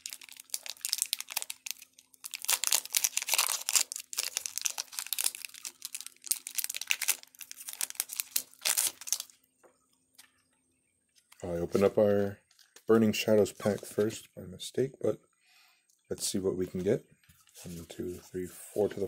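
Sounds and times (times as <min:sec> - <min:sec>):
foil wrapper crinkling: 0:00.0 - 0:09.4.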